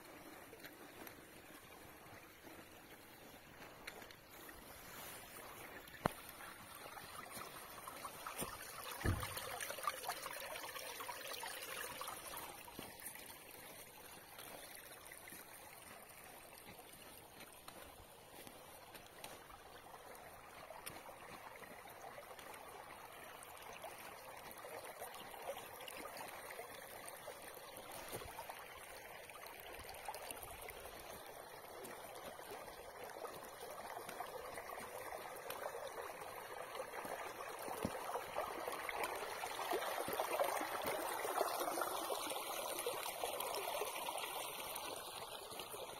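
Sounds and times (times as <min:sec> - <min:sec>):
water running along channel: 0:00.0 - 0:45.9
low thump: 0:09.0 - 0:09.5.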